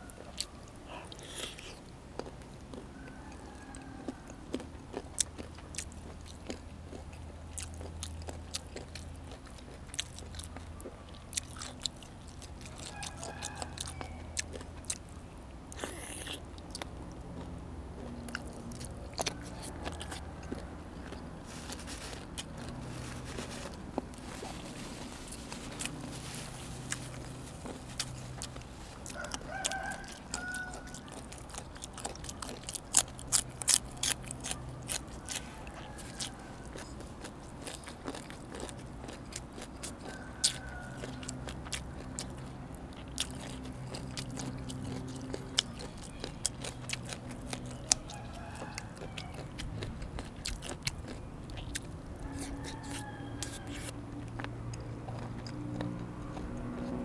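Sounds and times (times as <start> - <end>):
chewing and crunching bones: 0.0 - 57.0
chickens calling: 18.0 - 38.2, 39.6 - 42.8, 43.4 - 54.0.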